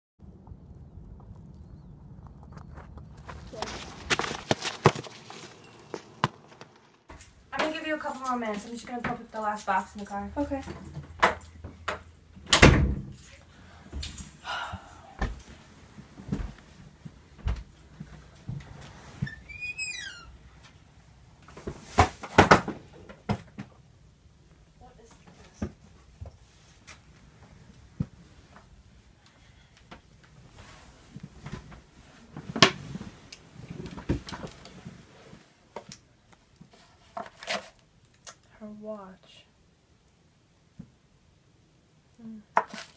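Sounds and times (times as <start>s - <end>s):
clicks and handling noise: 1.1s - 12.1s
short rustle: 3.2s - 7.4s.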